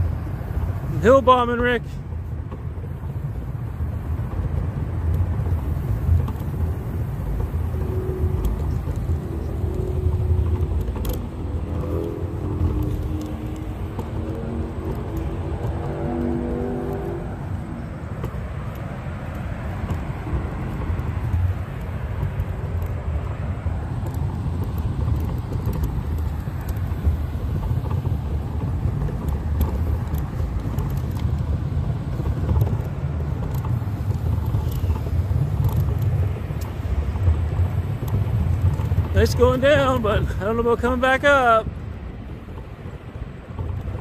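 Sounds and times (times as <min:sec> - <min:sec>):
wheelchair wheels rolling on concrete: 0:00.0 - 0:44.0.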